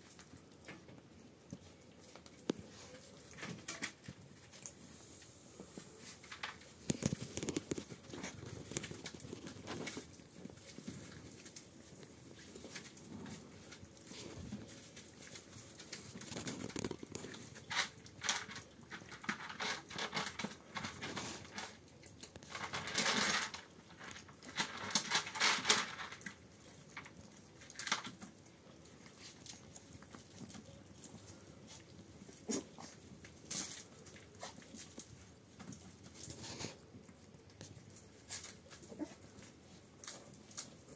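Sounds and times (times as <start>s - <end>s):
puppy scuffling on rug: 1.5s - 17.9s.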